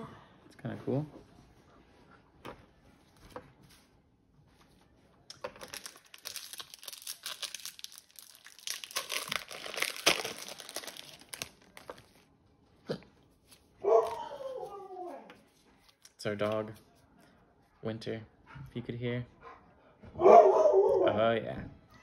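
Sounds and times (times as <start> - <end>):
foil wrapper crinkling and tearing: 5.3 - 12.3.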